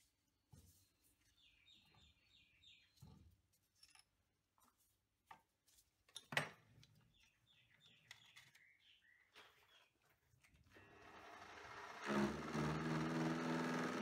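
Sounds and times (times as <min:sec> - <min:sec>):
faint bird chirping: 0:00.7 - 0:03.2, 0:07.0 - 0:10.4.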